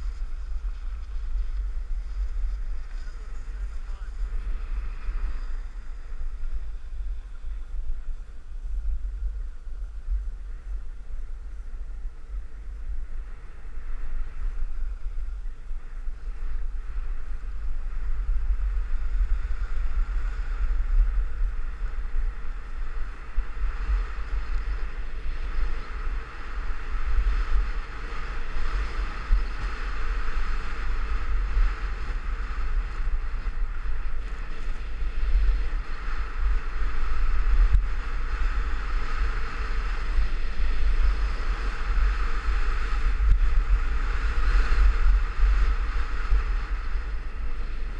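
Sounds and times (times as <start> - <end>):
hiss of sliding over snow: 0.0 - 8.5
wind rumbling on microphone: 0.0 - 47.9.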